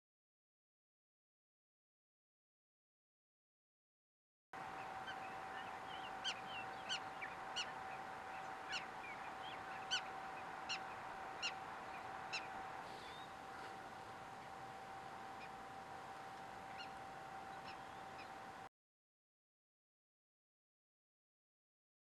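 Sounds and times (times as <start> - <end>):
faint steady tone: 4.6 - 18.7.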